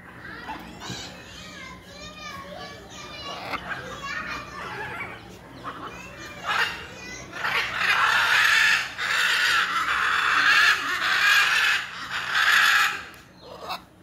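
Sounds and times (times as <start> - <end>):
macaw screeching: 3.3 - 13.8.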